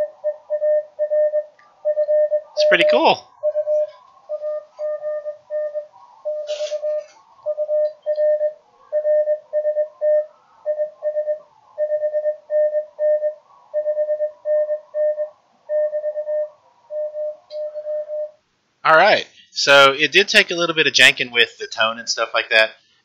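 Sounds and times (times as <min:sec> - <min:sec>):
faint radio band noise: 0:00.0 - 0:15.7, 0:18.9 - 0:23.0
morse code tone: 0:00.0 - 0:18.4.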